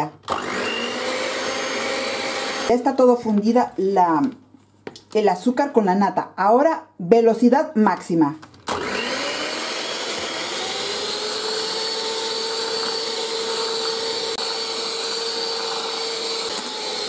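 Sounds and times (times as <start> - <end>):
electric hand mixer whining: 0.3 - 2.8, 8.7 - 17.0.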